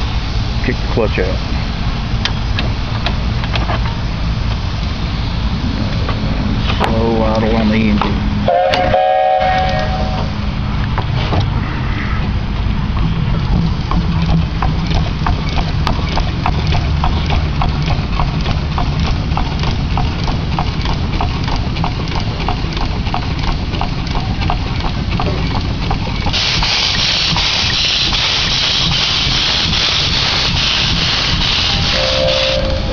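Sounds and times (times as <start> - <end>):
steam engine ticking at idle: 0.0 - 5.6, 12.5 - 32.9
escaping steam hiss: 26.3 - 32.9.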